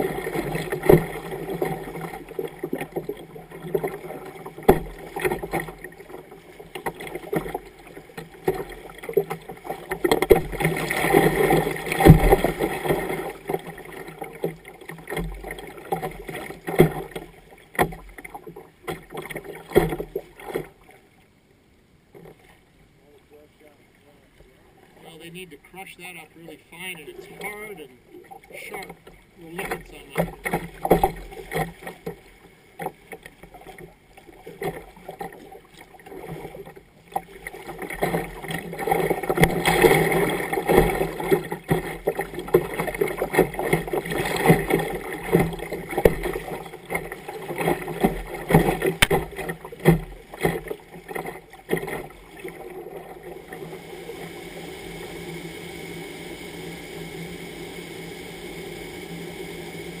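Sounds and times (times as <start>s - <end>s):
water rushing over a weir: 0.0s - 21.0s, 24.7s - 60.0s
water splashing against kayak: 0.0s - 21.4s, 22.0s - 60.0s
knocks on kayak: 4.6s - 5.7s, 12.0s - 12.6s, 48.0s - 52.0s.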